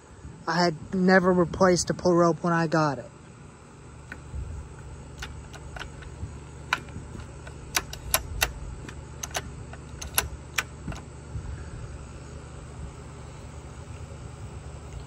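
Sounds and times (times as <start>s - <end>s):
low background rumble: 0.0s - 15.0s
tool tapping on chainsaw housing: 4.1s - 11.1s.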